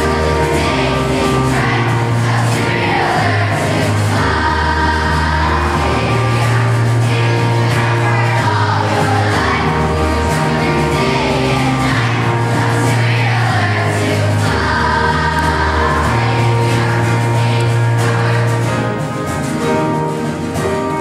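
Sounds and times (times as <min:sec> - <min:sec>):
children's choir singing: 0:00.0 - 0:21.0
held bass notes: 0:00.0 - 0:21.0
strummed acoustic guitars: 0:00.0 - 0:21.0.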